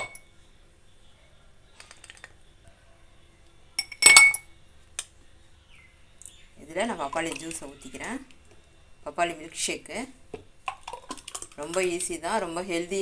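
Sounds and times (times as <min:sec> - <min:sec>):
ice cube clinking in glass: 0:03.8 - 0:04.4.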